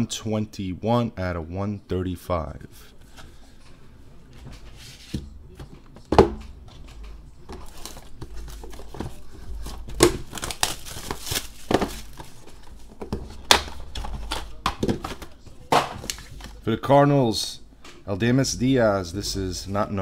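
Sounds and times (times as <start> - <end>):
plastic wrapper tearing and crinkling: 9.6 - 14.6.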